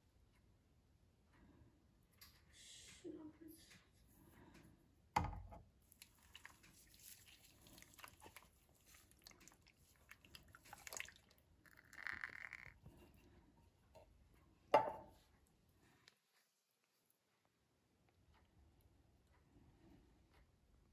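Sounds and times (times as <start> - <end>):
soft clicks and splats: 5.8 - 14.2
liquid pouring into pot: 6.0 - 13.3.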